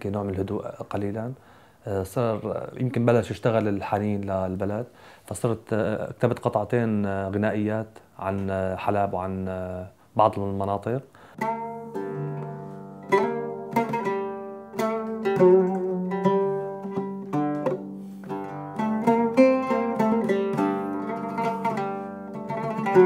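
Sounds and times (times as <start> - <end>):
oud melody: 11.4 - 23.0.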